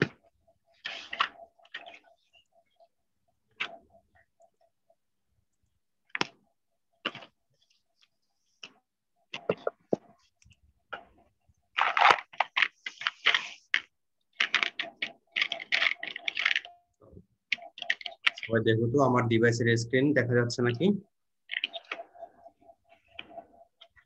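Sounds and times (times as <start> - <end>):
typing on laptop keyboard: 11.8 - 18.5, 21.4 - 24.0.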